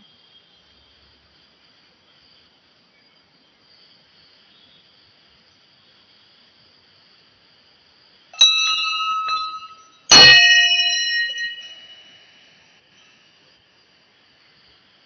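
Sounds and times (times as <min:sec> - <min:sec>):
brass bells ringing: 0:08.4 - 0:12.2.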